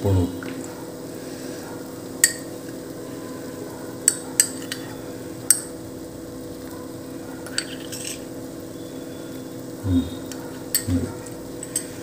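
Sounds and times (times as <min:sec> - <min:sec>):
metal spoon clinking on pan: 0:04.0 - 0:04.9, 0:07.4 - 0:08.3, 0:11.6 - 0:12.0
low hum: 0:09.8 - 0:11.6.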